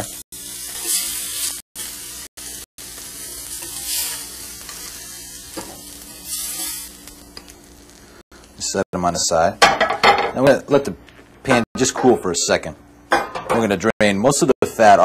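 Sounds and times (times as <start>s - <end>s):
steaks sizzling in a pan: 0.0s - 8.2s.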